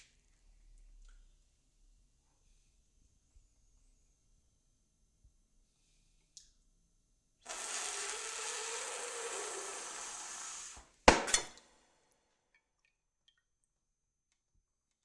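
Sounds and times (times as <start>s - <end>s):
steady hiss: 7.6s - 11.0s.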